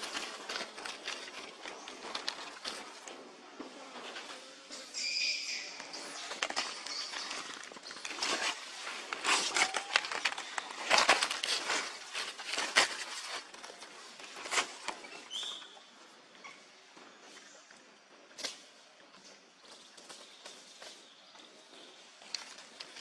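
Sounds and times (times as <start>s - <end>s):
dry leaves rustling and crackling: 0.0s - 3.1s, 5.4s - 15.4s.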